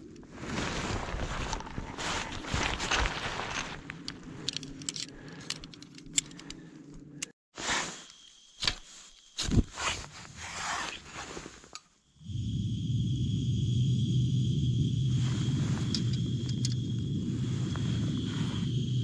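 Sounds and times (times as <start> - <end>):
scraping and crunching: 0.3 - 6.3.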